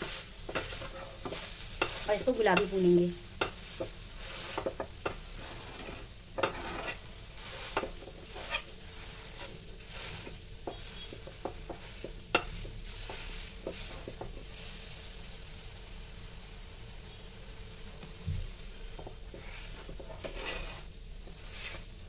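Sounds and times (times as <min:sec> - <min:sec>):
metal spatula scraping pan: 0:00.0 - 0:02.8, 0:03.4 - 0:14.2, 0:19.3 - 0:21.9
paste sizzling in oil: 0:00.0 - 0:22.0.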